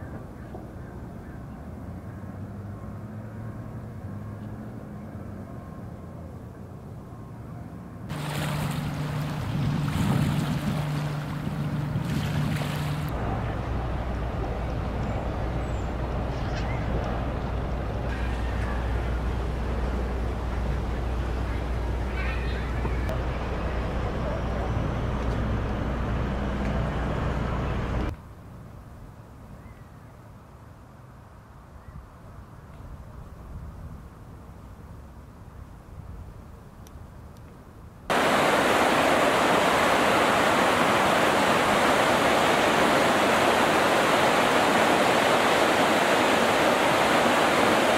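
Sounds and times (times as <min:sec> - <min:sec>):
wind: 0:00.0 - 0:47.9
engine droning: 0:01.5 - 0:28.2, 0:38.1 - 0:47.9
water noise: 0:08.1 - 0:28.1, 0:38.1 - 0:47.9.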